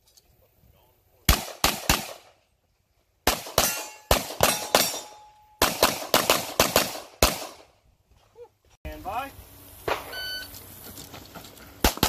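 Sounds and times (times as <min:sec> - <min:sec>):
pistol shots: 0:01.3 - 0:02.3, 0:03.2 - 0:07.7.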